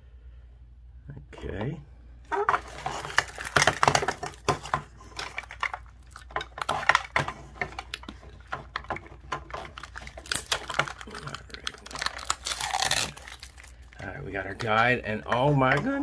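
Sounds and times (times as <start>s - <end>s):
plastic packet crinkling: 2.3s - 16.0s.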